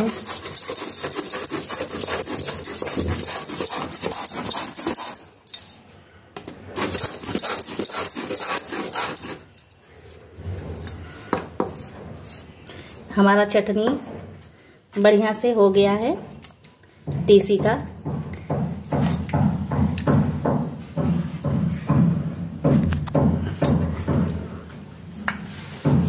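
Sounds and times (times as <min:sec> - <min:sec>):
stone-on-stone grinding scrape: 0:00.0 - 0:05.4, 0:06.8 - 0:13.6.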